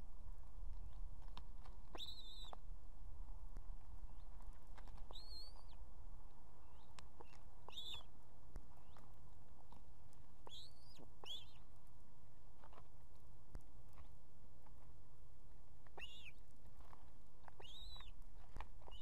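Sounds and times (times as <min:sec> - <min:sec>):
steady low rumble: 0:00.0 - 0:19.0
ospreys whistled chirps: 0:02.0 - 0:02.6, 0:05.1 - 0:05.8, 0:07.7 - 0:08.1, 0:10.5 - 0:11.6, 0:16.0 - 0:16.4, 0:17.6 - 0:18.1.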